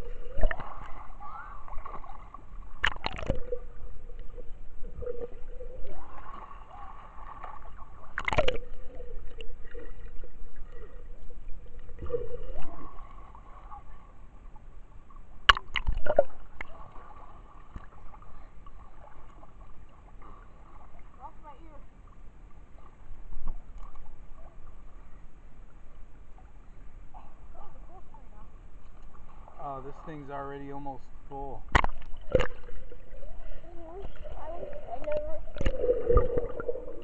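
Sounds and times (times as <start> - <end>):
underwater gurgling bubbles: 0.0 - 14.2, 15.2 - 21.1, 31.6 - 37.0
water splashes: 0.0 - 25.1, 28.9 - 37.0
underwater hum: 0.0 - 37.0.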